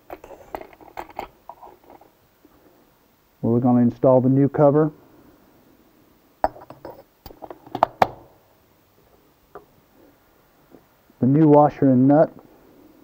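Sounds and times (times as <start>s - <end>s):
metallic clinks and knocks: 6.4s - 7.9s.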